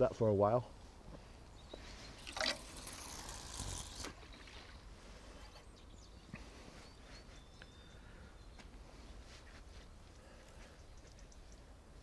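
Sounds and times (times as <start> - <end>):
fishing reel whirring: 2.4 - 4.2.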